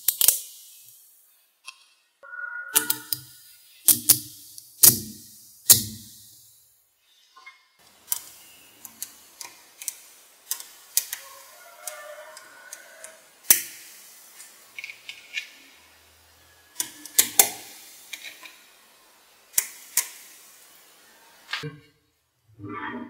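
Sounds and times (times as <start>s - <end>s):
magnetic balls clicking together: 0.0s - 1.1s, 2.7s - 6.5s, 8.0s - 11.2s.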